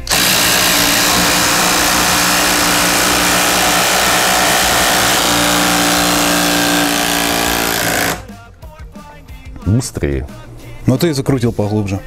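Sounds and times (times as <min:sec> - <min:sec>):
impact drivers hammering screws: 0:00.0 - 0:08.3.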